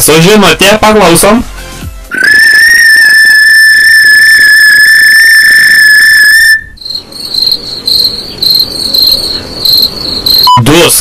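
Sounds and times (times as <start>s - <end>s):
piercing high tone: 2.1s - 10.7s
high chirping pulses: 2.1s - 11.0s.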